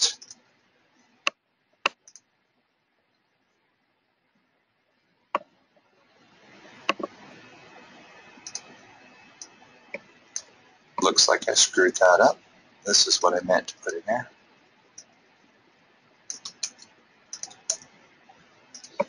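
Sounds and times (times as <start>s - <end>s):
faint steady hiss: 0.0s - 19.0s
computer mouse clicks: 1.9s - 2.3s, 6.7s - 7.2s, 8.4s - 10.5s, 16.3s - 18.0s, 18.7s - 19.0s.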